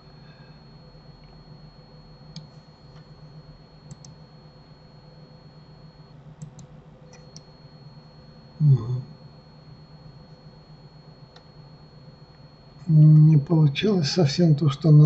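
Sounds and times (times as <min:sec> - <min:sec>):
steady low hum: 0:00.0 - 0:15.0
computer mouse clicking: 0:03.9 - 0:04.2, 0:06.4 - 0:07.4.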